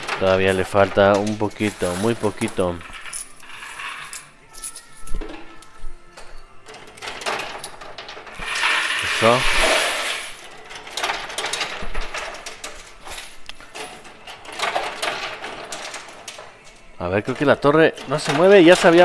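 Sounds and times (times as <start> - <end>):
rush of coin clatter: 0.0 - 4.8, 7.0 - 16.4
coins clinking and dropping: 0.0 - 19.0.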